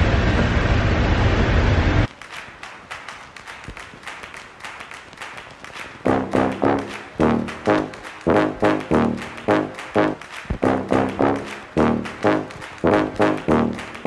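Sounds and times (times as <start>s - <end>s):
brass horn notes: 6.0s - 14.0s.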